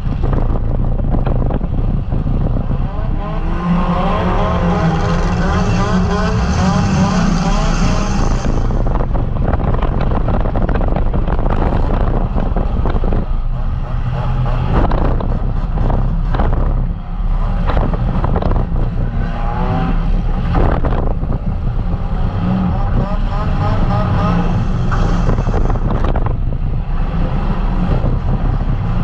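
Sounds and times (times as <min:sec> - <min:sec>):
car engine revving loud: 0:02.5 - 0:10.5, 0:11.5 - 0:26.3.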